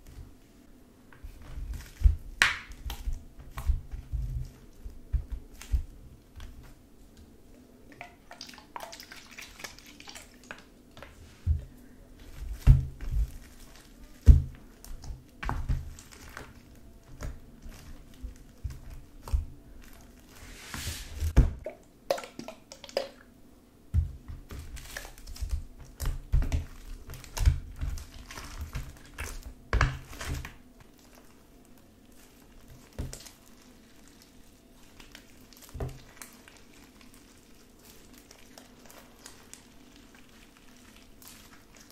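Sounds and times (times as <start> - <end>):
slime squishing by hand: 1.1 - 23.2, 23.9 - 41.9
crackly rustle: 9.5 - 21.4, 24.3 - 41.9.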